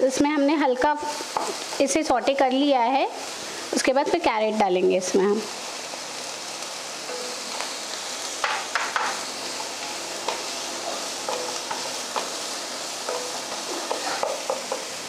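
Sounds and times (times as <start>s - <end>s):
vegetables sizzling in a pan: 0.0s - 15.0s
wooden spatula knocking a pan: 8.4s - 9.2s, 11.2s - 12.4s, 13.0s - 14.9s.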